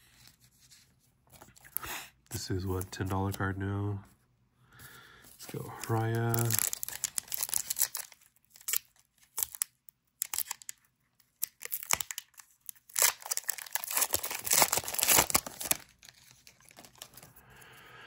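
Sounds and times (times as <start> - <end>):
wrapper tearing and crinkling: 5.5 - 17.3.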